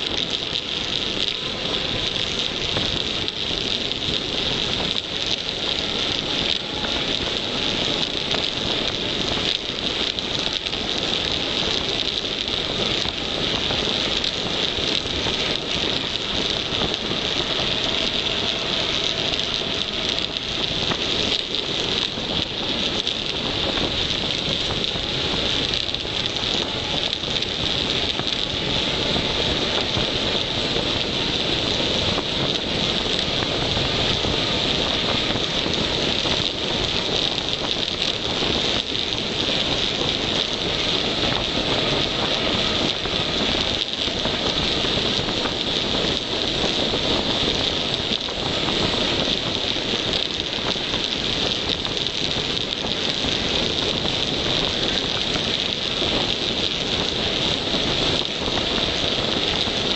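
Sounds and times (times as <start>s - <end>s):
bike tyres on tarmac: 0.0s - 59.9s
wind over microphone: 0.0s - 59.9s.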